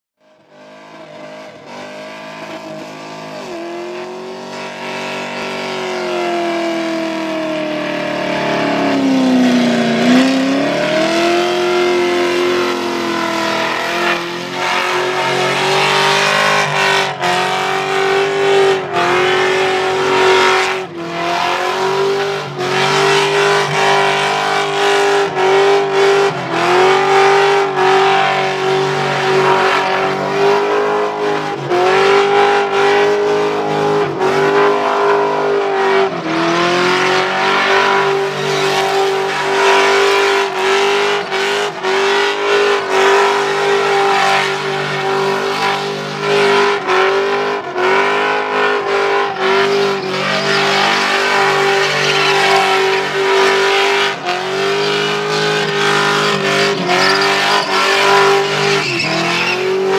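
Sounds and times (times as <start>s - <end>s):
car engine revving high: 0.2s - 59.9s
tyres squealing: 49.0s - 59.9s.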